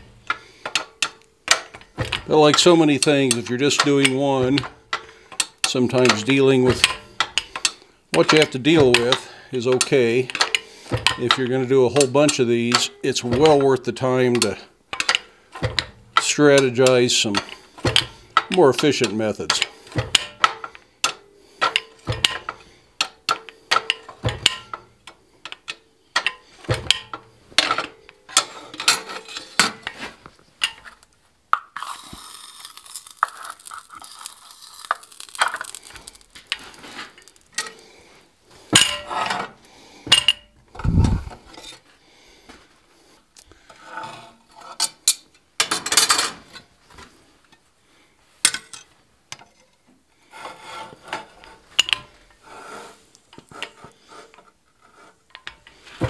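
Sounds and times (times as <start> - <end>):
metal clanks of press: 0.0 - 11.4, 14.3 - 30.0, 38.7 - 41.8
metal scraping and rattling: 0.0 - 31.1, 31.8 - 41.9.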